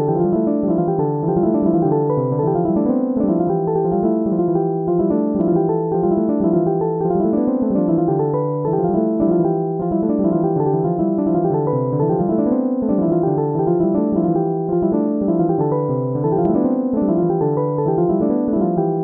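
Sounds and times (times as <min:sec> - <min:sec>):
piano music: 0:00.0 - 0:19.0.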